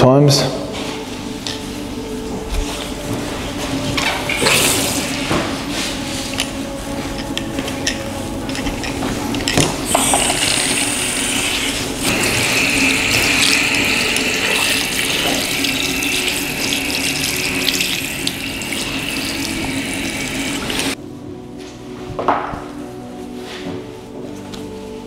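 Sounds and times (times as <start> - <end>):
water pouring over body: 10.0 - 21.0.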